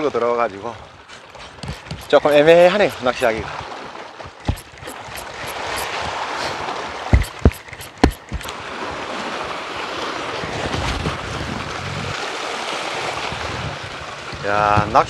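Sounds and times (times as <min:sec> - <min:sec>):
sharp knocks: 0:04.3 - 0:06.0, 0:07.1 - 0:08.5
wind noise on microphone: 0:10.4 - 0:12.2, 0:13.0 - 0:15.0.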